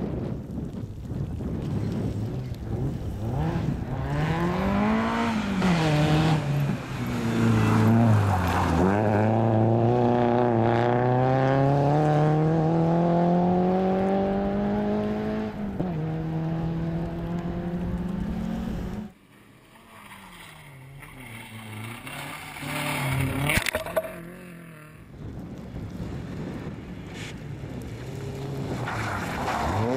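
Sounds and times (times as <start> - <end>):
car engine passing by: 2.9 - 19.1
race car engine revving hard: 3.3 - 6.6.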